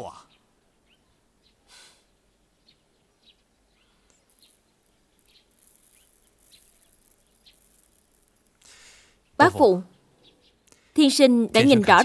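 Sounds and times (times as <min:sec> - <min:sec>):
bird chirps: 0:00.0 - 0:10.9
beans trickling from hand: 0:03.8 - 0:09.2.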